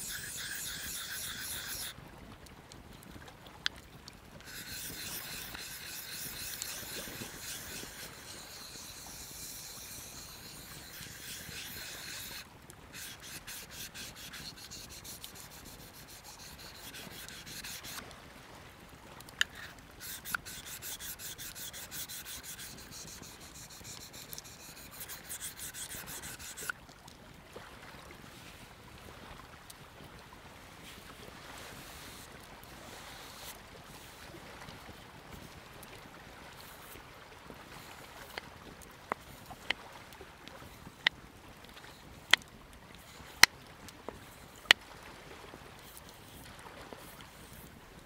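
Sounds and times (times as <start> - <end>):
knife scraping on whetstone: 0.0 - 2.0, 4.4 - 18.0, 19.4 - 26.7, 31.8 - 33.6, 43.0 - 43.5, 45.8 - 47.7.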